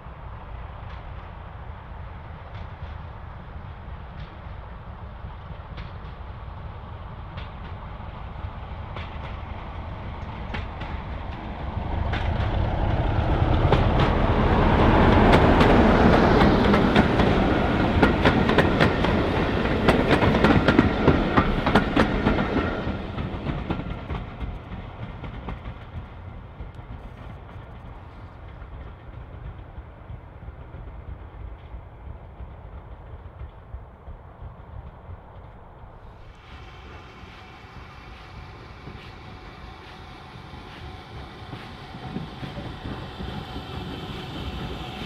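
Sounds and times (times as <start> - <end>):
diesel locomotive engine: 0.0 - 45.0
train wheels clattering over rail joints: 7.2 - 30.2.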